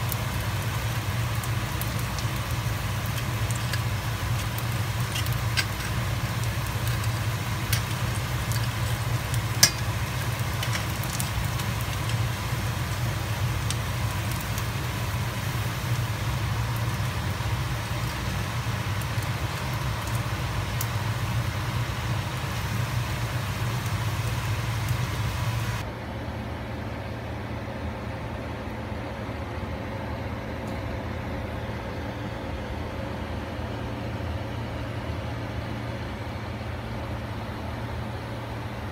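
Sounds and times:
oil sizzling and popping: 0.0 - 25.8
steady low hum: 0.0 - 38.9.

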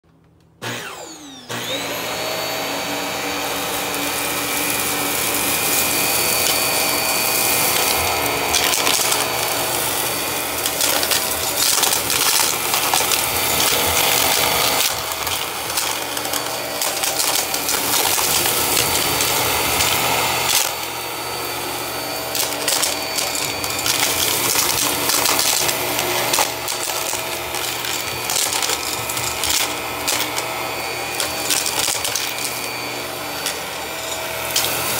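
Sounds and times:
debris crackling up vacuum: 0.6 - 34.9
vacuum cleaner motor whine: 0.6 - 34.9.

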